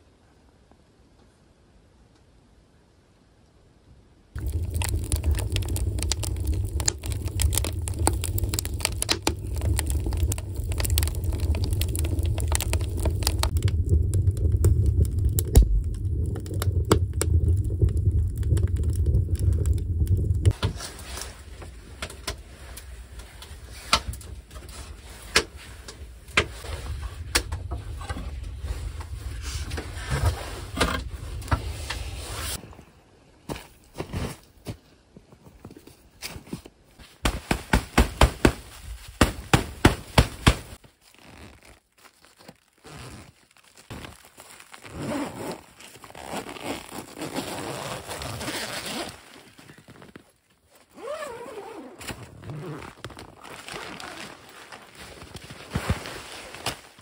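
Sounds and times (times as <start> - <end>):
fire crackling and popping: 4.3 - 32.6, 37.2 - 54.2
fire draft roaring: 4.3 - 32.8.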